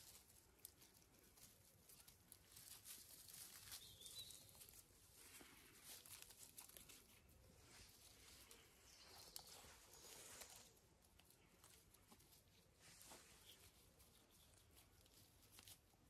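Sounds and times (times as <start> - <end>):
dry grass rustling and crackling: 0.0 - 16.0
paws scuffling: 0.0 - 16.0.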